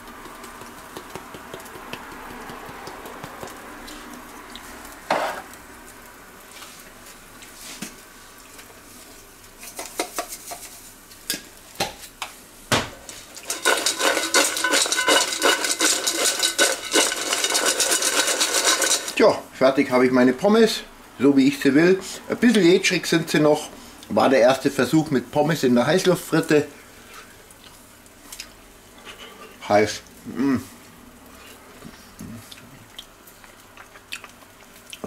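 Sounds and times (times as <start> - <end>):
fries rattling in metal bowl: 0.0 - 5.6, 9.6 - 11.0, 13.0 - 19.5
light taps and clicks: 0.1 - 3.6
faint steady hiss: 18.8 - 35.0.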